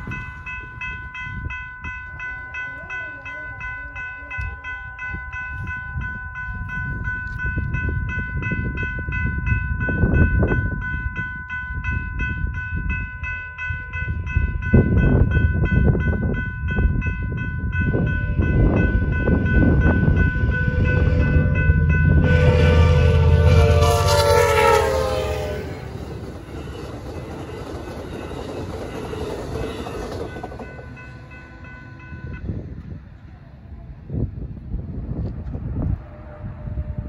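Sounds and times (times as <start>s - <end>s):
railroad crossing bell ringing: 0.0s - 33.6s
train rumble: 0.0s - 37.0s
train horn: 18.3s - 26.8s, 35.8s - 37.0s.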